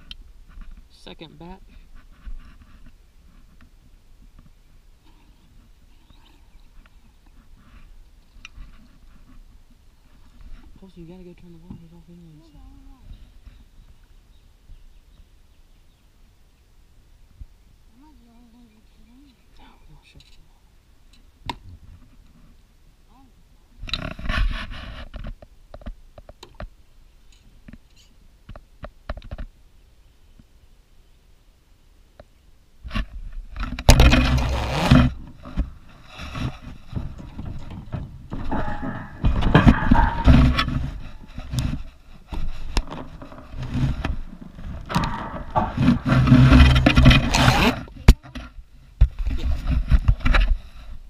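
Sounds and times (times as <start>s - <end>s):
camera handling rubbing and thumps: 32.9s - 50.6s.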